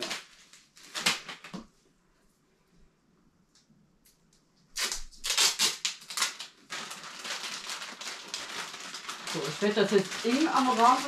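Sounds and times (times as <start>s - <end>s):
adhesive tape tearing off roll: 4.7s - 6.6s.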